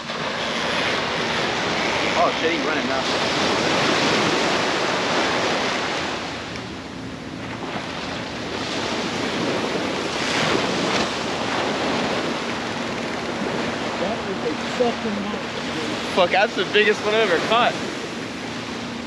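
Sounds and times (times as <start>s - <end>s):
surf breaking on beach: 0.0s - 6.7s, 7.4s - 18.9s
wind buffeting microphone: 0.0s - 19.0s.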